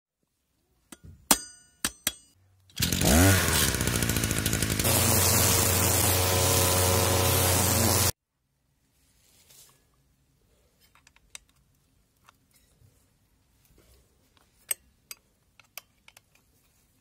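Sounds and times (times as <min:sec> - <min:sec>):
string trimmer engine revving: 0:02.8 - 0:08.2
trimmer cutting grass: 0:02.8 - 0:08.2.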